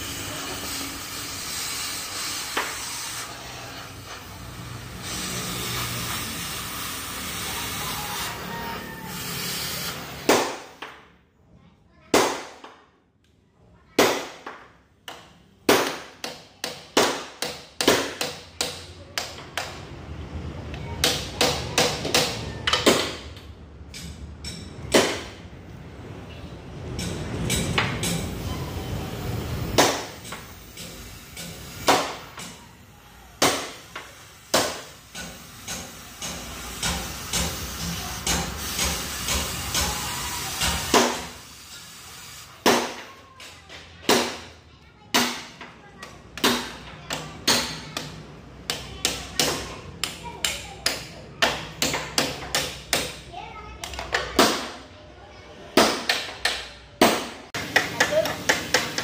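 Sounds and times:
cutting torch hissing: 0.0 - 10.3, 34.1 - 42.7.

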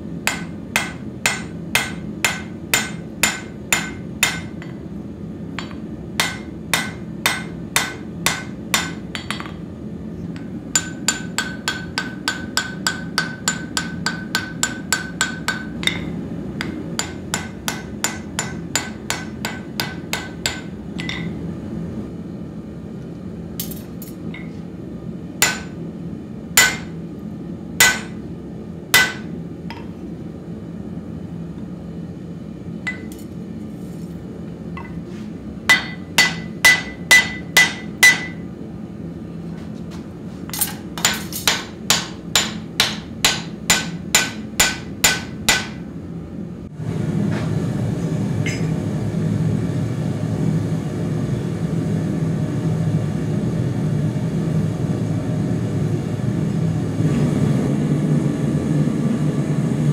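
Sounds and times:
hammer blows on anvil: 26.6 - 27.0, 35.7 - 38.4
anvil ringing: 32.9 - 33.2, 35.7 - 38.4.

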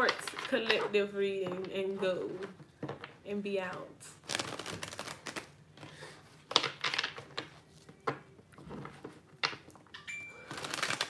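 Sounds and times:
cards being shuffled: 4.2 - 9.7, 10.4 - 11.0.

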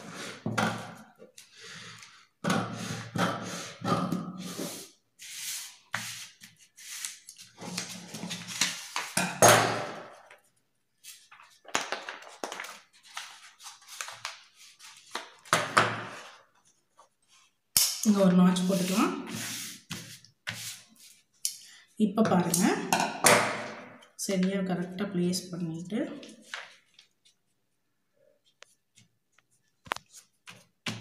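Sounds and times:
stiff paper rustling and crinkling: 11.0 - 17.5.

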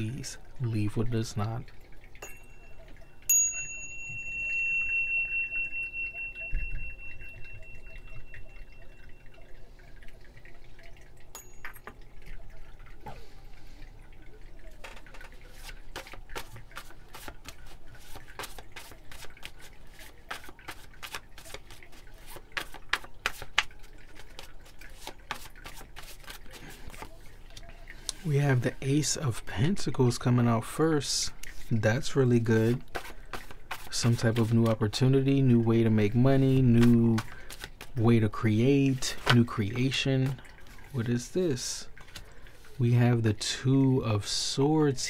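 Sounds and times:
small bell ringing: 2.2 - 9.5, 11.3 - 12.1
cards being shuffled: 14.8 - 27.7, 36.8 - 38.0.

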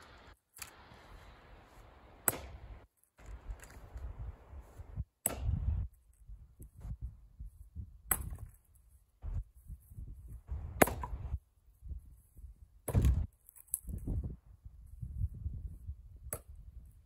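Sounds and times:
axe chopping firewood: 2.2 - 2.7, 5.2 - 5.8, 8.1 - 8.6, 10.7 - 11.4, 12.8 - 14.0, 16.3 - 16.6.

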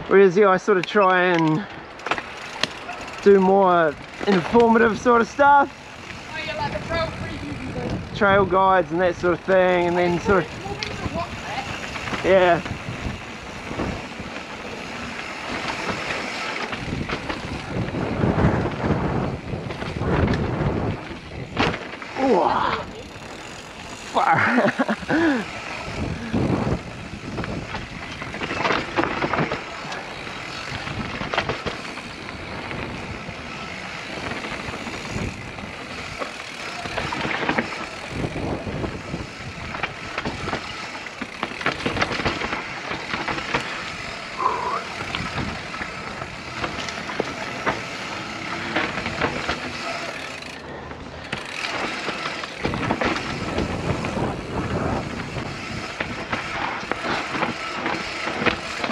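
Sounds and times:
bike rattling over bumps: 0.0 - 58.9
bike tyres rolling over dirt: 0.0 - 58.9.

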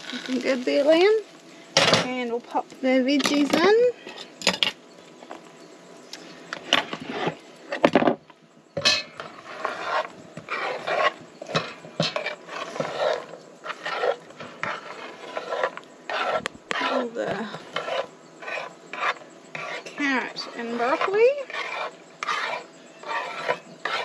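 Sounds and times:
tongs scraping on wooden board: 8.8 - 24.0.

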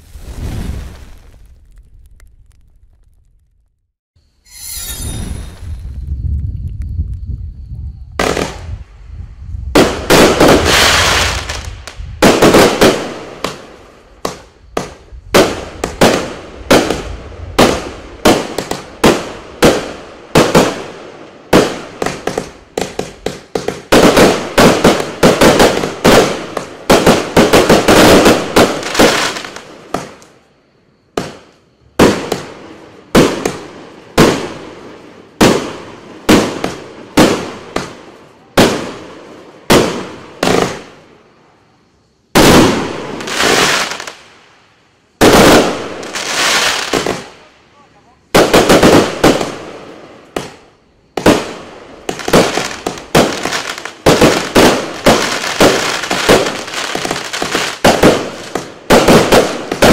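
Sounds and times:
firework cake sharp bangs: 9.7 - 30.2, 31.1 - 34.8, 35.4 - 41.0, 42.3 - 44.1, 45.2 - 47.5, 48.3 - 59.9.

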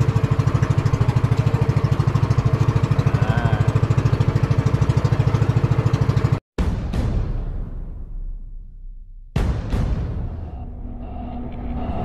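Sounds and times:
boat engine running: 0.0 - 6.4.

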